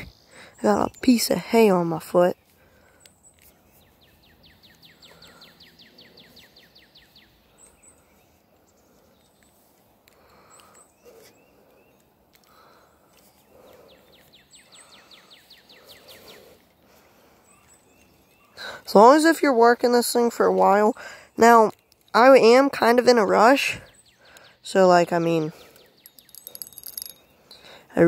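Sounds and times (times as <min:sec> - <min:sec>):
songbird trilling: 0:20.9 - 0:27.8.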